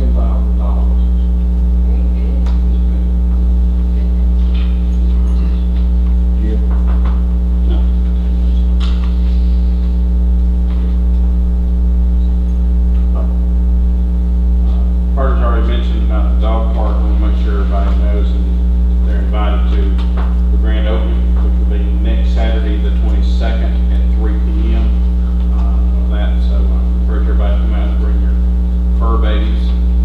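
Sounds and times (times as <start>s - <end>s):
faint indistinct voices: 0.0s - 6.8s
electrical mains hum: 0.0s - 30.0s.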